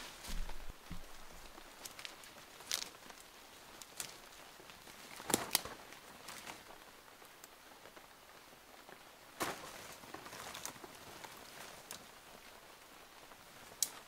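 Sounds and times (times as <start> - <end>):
footsteps in leaf litter: 0.0 - 3.2, 9.4 - 12.0
brushing through leaves: 0.0 - 6.8, 9.4 - 12.4.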